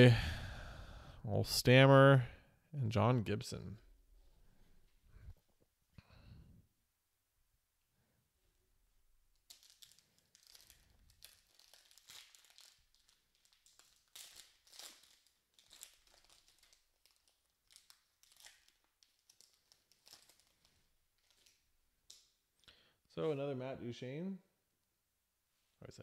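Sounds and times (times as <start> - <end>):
foil wrapper crinkling: 9.3 - 22.3.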